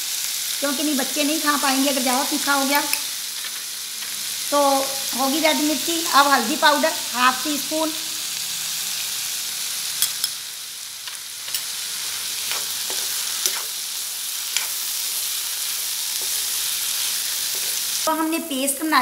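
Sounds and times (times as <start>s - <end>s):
masala sizzling in oil: 0.0s - 19.0s
spoon scraping metal pan: 10.0s - 10.4s, 11.1s - 13.8s, 14.5s - 15.0s.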